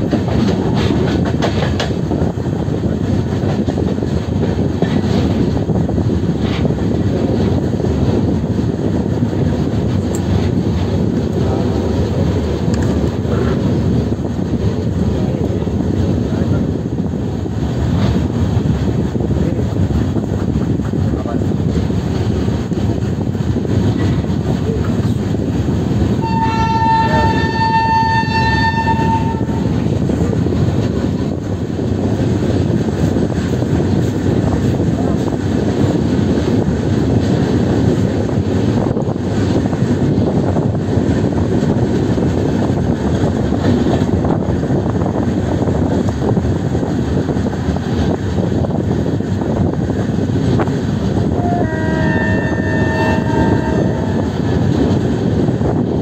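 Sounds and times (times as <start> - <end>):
train wheels and wind rumble: 0.0 - 56.0
locomotive horn: 26.2 - 29.8, 51.3 - 54.5.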